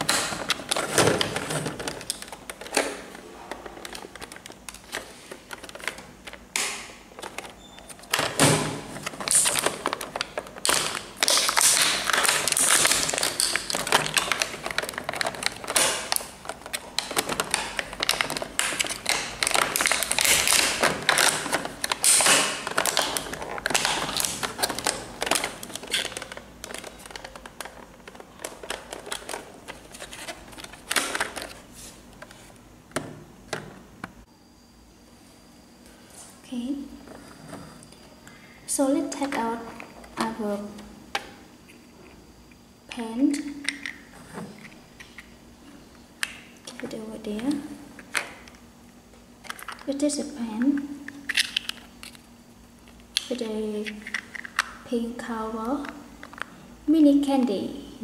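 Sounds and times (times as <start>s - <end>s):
plastic wrapping crinkling: 0.0s - 32.6s.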